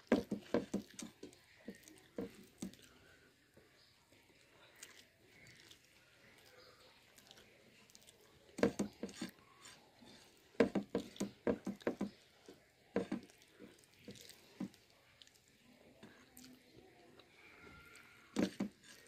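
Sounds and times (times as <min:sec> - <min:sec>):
fingers tapping and scraping plate: 0:00.0 - 0:02.9, 0:08.6 - 0:14.8, 0:18.3 - 0:19.0.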